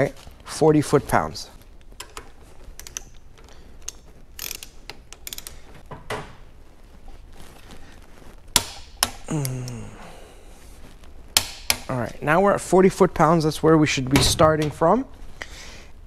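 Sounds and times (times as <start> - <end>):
socket ratchet clicking: 2.8 - 3.2, 3.8 - 5.6.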